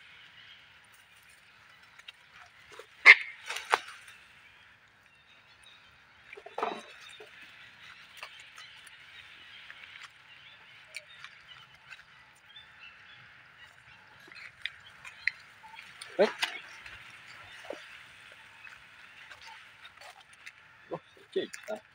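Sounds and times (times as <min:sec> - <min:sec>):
clicks and rustles in leaf litter: 0:00.9 - 0:04.4.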